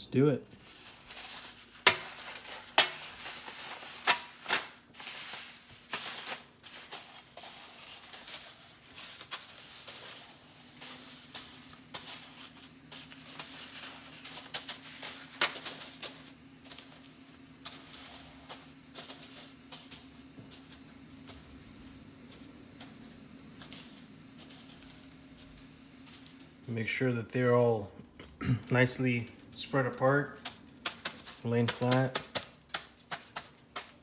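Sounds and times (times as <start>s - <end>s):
papery rustling: 0.6s - 26.8s, 28.8s - 34.0s.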